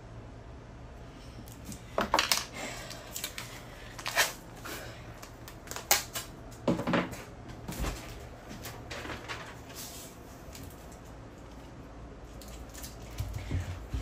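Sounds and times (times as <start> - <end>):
adhesive tape ripping: 3.2 - 4.4.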